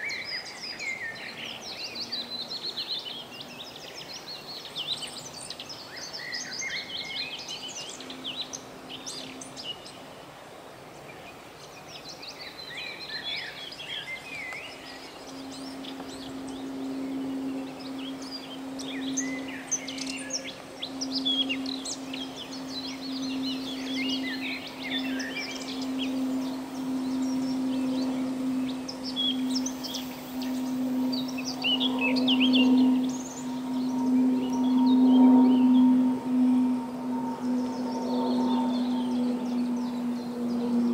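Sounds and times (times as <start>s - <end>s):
songbirds singing and chirping: 0.0s - 10.4s, 11.0s - 40.9s
low steady hum: 0.0s - 40.9s.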